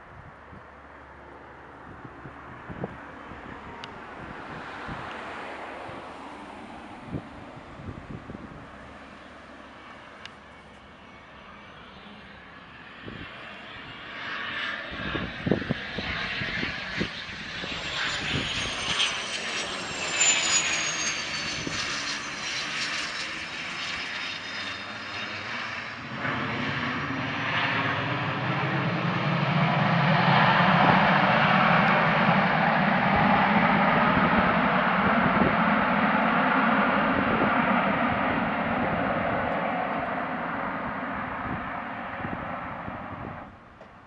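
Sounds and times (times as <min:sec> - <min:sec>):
jet engine whine: 0:00.0 - 0:44.0.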